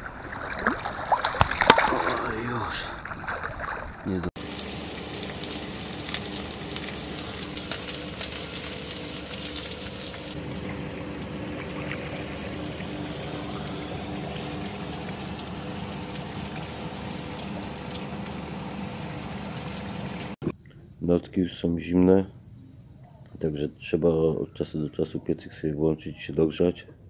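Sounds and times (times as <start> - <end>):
water rushing along boat hull: 0.0 - 20.4
steady low hum: 0.0 - 24.0
sausages sizzling in a frying pan: 4.4 - 10.4.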